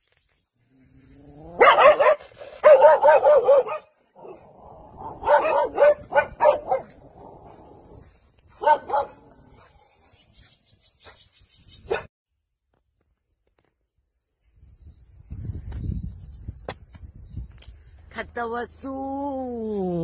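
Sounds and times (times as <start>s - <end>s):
dog barking: 1.5s - 7.6s, 8.5s - 10.1s, 11.9s - 12.1s.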